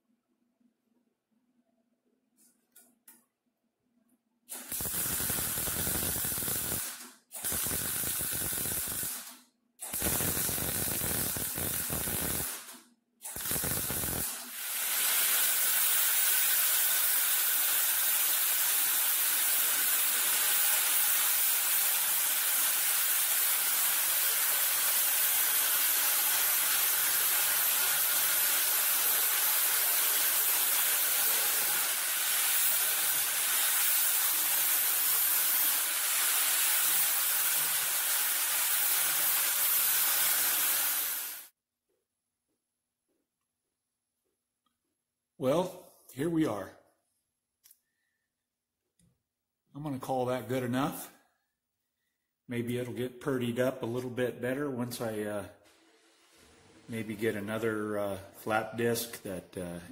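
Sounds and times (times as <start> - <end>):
angle grinder grinding welds: 4.5 - 41.5
arc welding on steel: 4.5 - 41.5.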